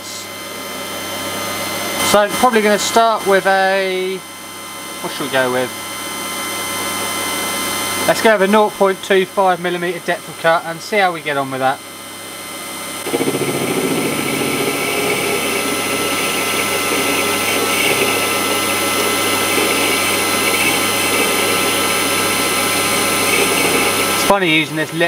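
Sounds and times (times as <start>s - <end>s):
lathe cutting steel: 13.0s - 24.8s.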